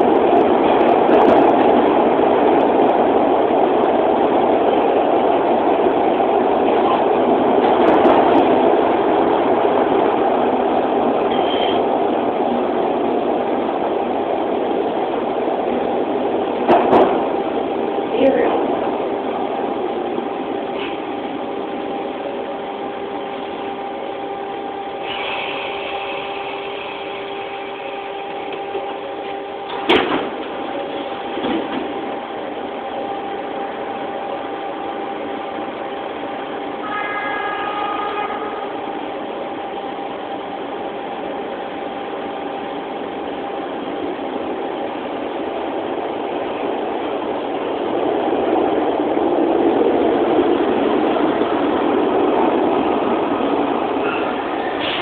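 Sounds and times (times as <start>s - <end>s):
subway car hum: 0.0s - 55.0s.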